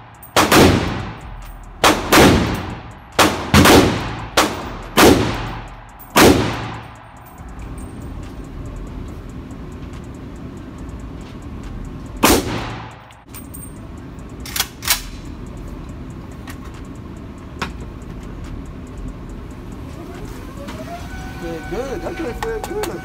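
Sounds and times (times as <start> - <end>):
pistol shots ringing indoors: 0.2 - 7.2, 12.2 - 13.0.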